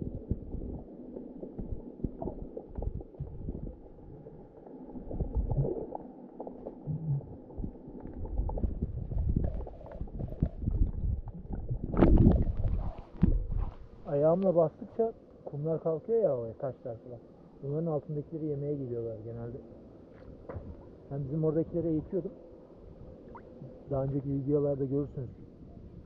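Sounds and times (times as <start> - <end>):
low bumps: 0.0 - 6.0, 6.6 - 14.0.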